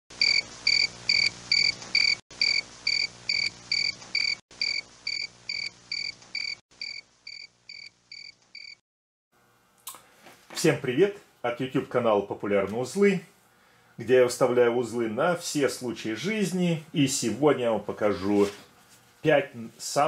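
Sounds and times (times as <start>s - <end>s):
cricket chirping: 0.2s - 8.8s.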